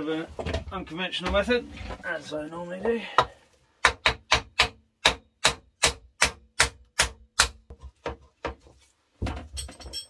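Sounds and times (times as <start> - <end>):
hammer tapping metal: 3.2 - 7.6.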